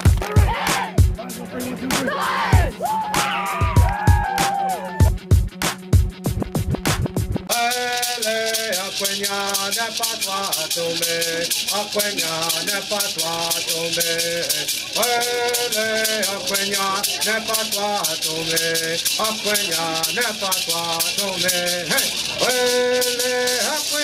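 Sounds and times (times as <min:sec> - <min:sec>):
gourd rattle shaking: 0:07.5 - 0:24.0
man singing a chant: 0:07.5 - 0:24.0.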